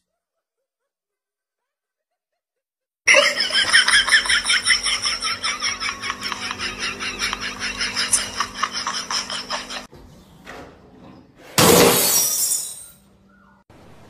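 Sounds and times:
laughter: 3.1s - 9.9s
glass breaking on tiled floor: 11.6s - 13.0s.

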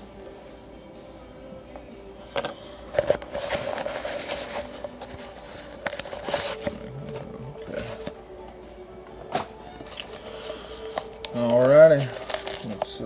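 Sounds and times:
paper mailer rustling and crinkling: 2.9s - 8.2s, 9.3s - 13.0s.

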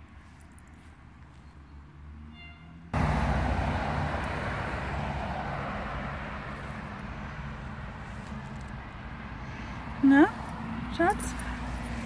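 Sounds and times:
vehicle passing with tyre hiss: 2.0s - 12.0s.

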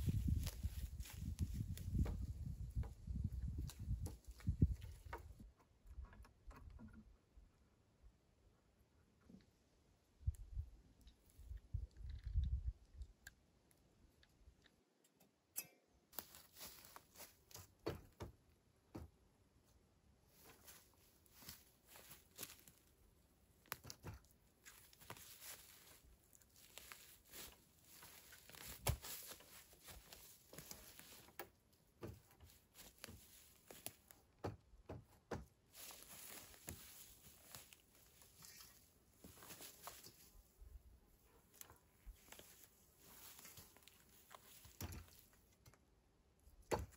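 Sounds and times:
tarp rustling and crackling: 24.6s - 31.4s, 35.7s - 40.6s, 41.5s - 45.4s.

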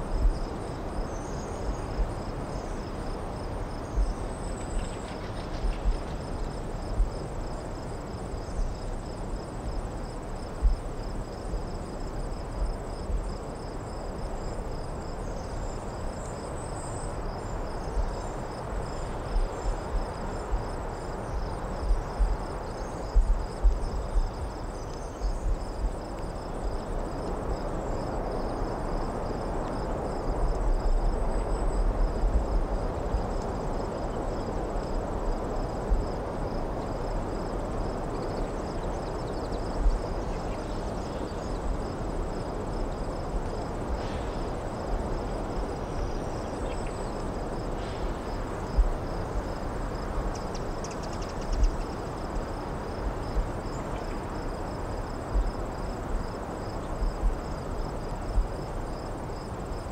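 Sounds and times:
crickets chirring: 0.0s - 59.9s
distant road traffic hiss: 39.7s - 59.9s.

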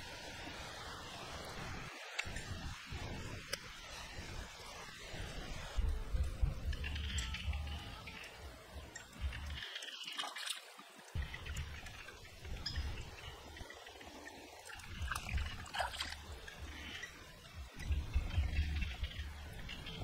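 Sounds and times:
water dribbling and splashing: 0.0s - 20.0s
low rumble: 17.6s - 20.0s.

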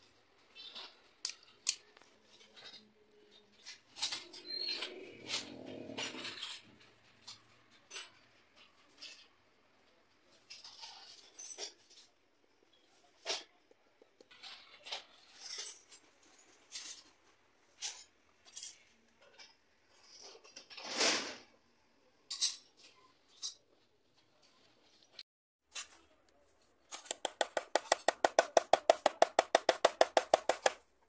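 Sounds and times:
iron rod scraping plastic: 26.9s - 30.8s
sharp plastic clicks: 26.9s - 30.9s.

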